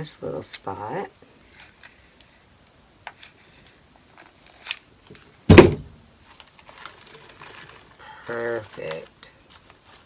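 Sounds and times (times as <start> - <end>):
artificial greenery rustling: 0.0 - 10.0
thump on table with ring: 5.5 - 5.9.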